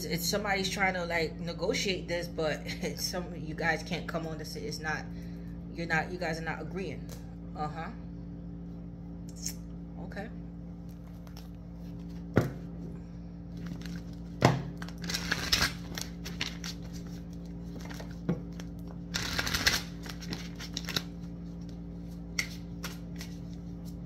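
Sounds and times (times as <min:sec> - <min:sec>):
steady low hum: 0:00.0 - 0:24.0
cards being shuffled: 0:13.5 - 0:24.0.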